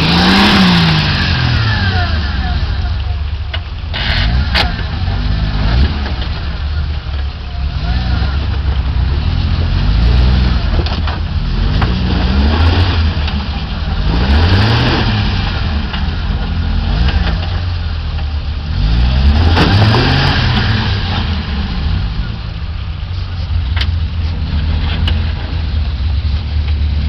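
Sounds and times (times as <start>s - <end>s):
engine revving: 0.0s - 3.0s, 3.9s - 7.0s, 7.6s - 22.8s
knocks of tires on rock: 8.1s - 13.6s, 19.3s - 21.4s.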